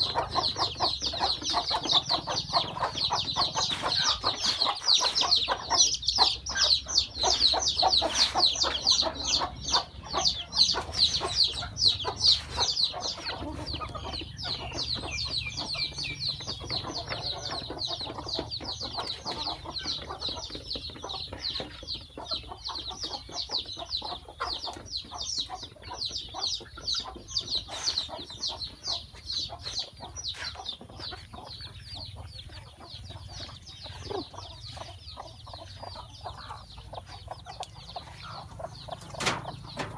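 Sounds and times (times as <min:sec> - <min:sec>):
chicks peeping: 0:00.0 - 0:39.9
hen clucking: 0:00.0 - 0:39.9.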